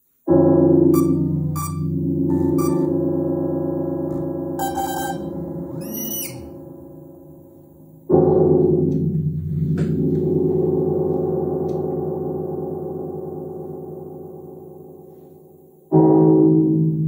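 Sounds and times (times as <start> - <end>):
synthesizer tone: 0.9 - 3.1, 4.6 - 7.3
low gong-like synth chord: 6.4 - 8.7.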